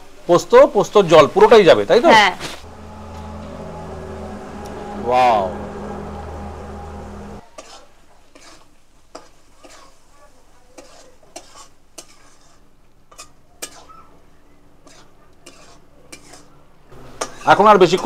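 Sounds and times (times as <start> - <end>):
faint sizzle: 0.0 - 18.0
spatula scraping a pan: 7.6 - 10.2, 10.8 - 14.0, 14.8 - 16.6, 17.2 - 17.6.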